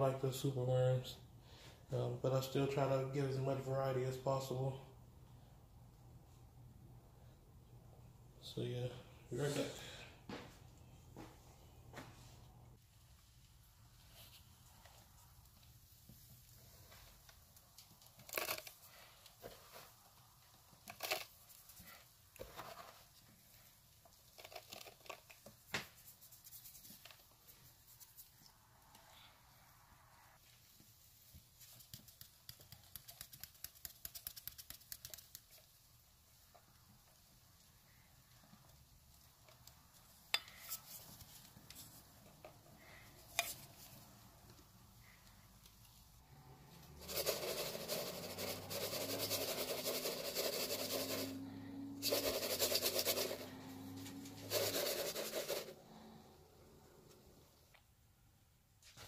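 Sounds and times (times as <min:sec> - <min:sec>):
worms rattling in plastic cup: 0:18.0 - 0:18.9, 0:20.7 - 0:21.8, 0:24.1 - 0:25.6, 0:46.9 - 0:51.4, 0:52.0 - 0:55.8.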